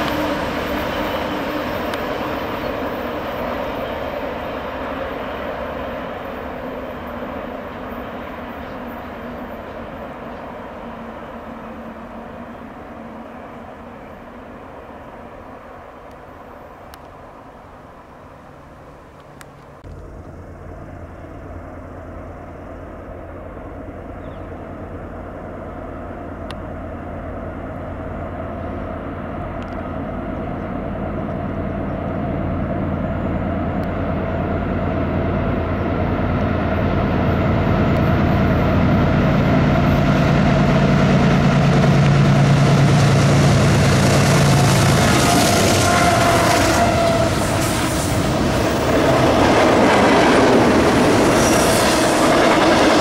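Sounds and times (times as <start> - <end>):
diesel locomotive engine rumble: 0.0 - 53.0.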